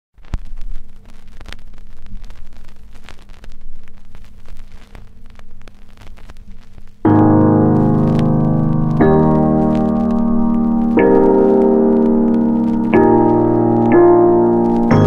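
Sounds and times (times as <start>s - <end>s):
crackling hiss: 0.2s - 15.0s
low hum: 7.0s - 15.0s.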